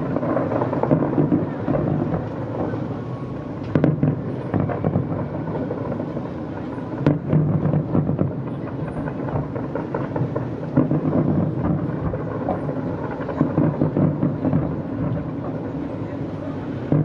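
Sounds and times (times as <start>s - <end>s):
distant fireworks booming: 0.0s - 17.0s
sharp firework bangs: 3.6s - 5.7s, 7.0s - 15.9s, 16.7s - 17.0s.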